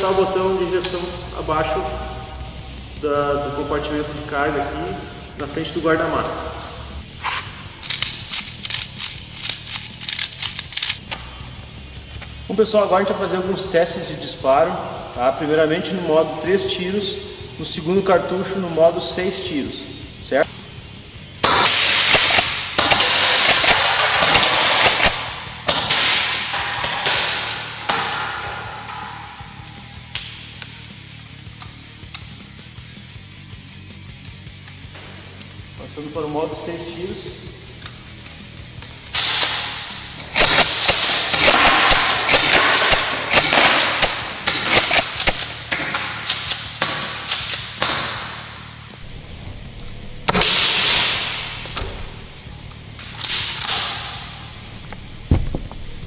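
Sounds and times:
airsoft shotgun shots: 0:21.4 - 0:30.4, 0:39.1 - 0:48.7, 0:50.2 - 0:52.3, 0:53.1 - 0:54.7.

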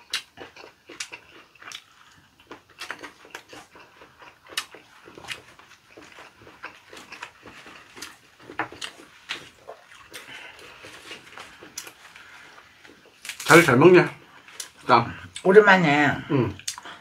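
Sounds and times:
chewing and mouth smacking: 0:00.0 - 0:13.5, 0:16.6 - 0:17.0.

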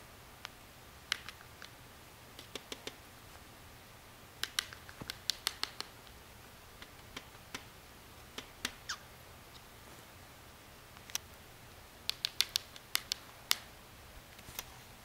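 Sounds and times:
beak pecking remote buttons: 0:04.4 - 0:06.0, 0:12.1 - 0:13.7.

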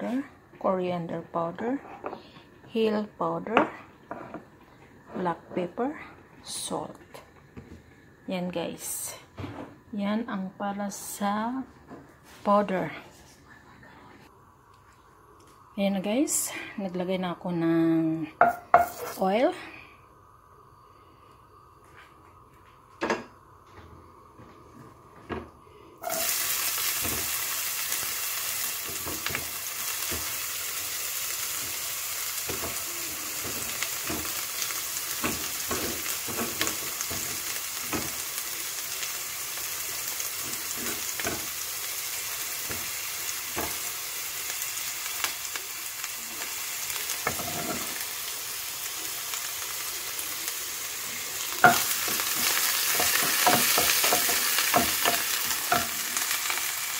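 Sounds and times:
onion sizzling in hot oil: 0:26.0 - 0:56.9.

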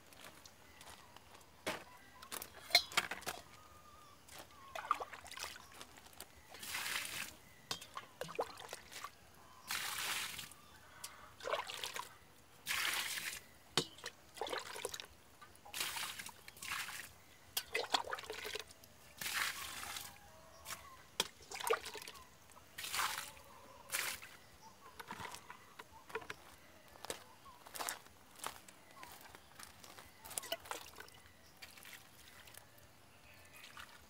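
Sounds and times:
water pouring and splashing: 0:04.3 - 0:05.9, 0:06.5 - 0:10.6, 0:11.4 - 0:24.4, 0:25.0 - 0:26.3, 0:30.3 - 0:32.6, 0:33.6 - 0:34.0.

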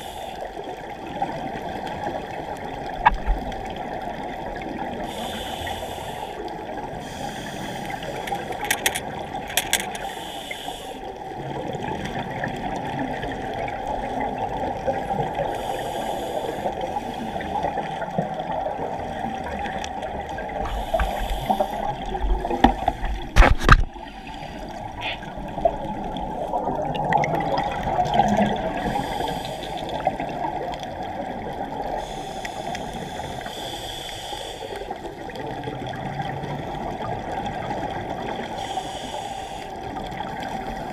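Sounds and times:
regulator bubbles hissing: 0:00.0 - 0:40.9
muffled underwater sound: 0:10.0 - 0:40.9.

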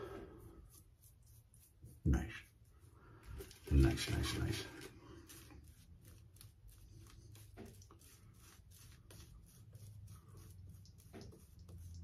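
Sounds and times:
razor scraping stubble: 0:03.4 - 0:12.0.

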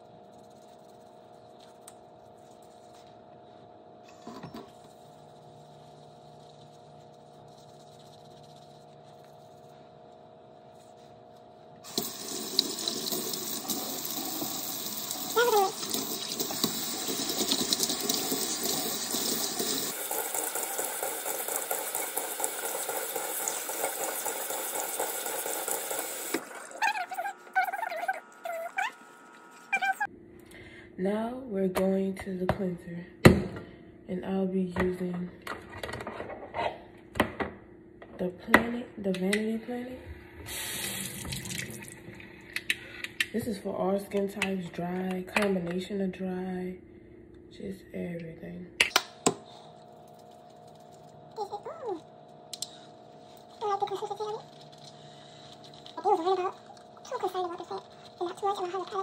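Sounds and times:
sink tap water running: 0:11.8 - 0:30.1, 0:40.5 - 0:42.8, 0:53.4 - 0:59.0.

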